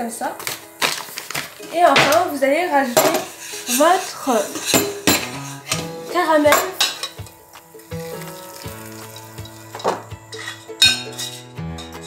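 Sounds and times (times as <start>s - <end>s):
soft background music: 0.0s - 12.0s
spoon scraping saucepan: 1.6s - 7.3s, 8.0s - 12.0s
caramel pouring into metal tin: 7.8s - 10.0s.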